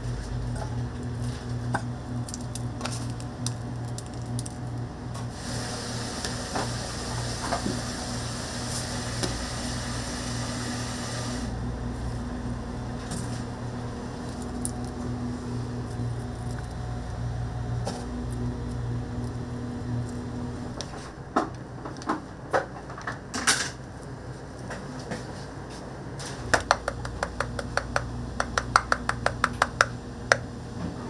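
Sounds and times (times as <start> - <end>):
machine hum: 0.0 - 31.0.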